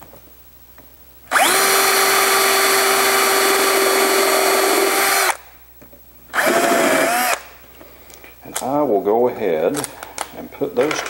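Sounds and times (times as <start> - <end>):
cordless drill boring into wood: 1.3 - 5.4, 6.3 - 7.4.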